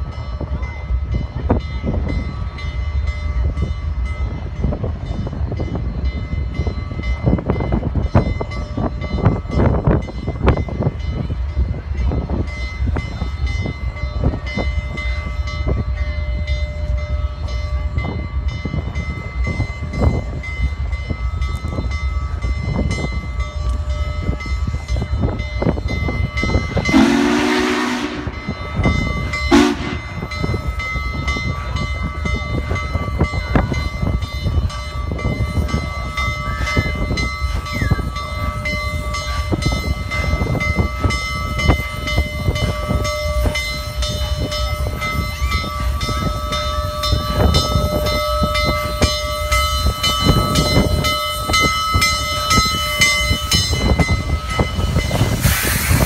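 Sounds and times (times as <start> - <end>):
steam locomotive rumbling: 0.0 - 56.0
steam whistle: 26.9 - 28.5, 29.5 - 30.2.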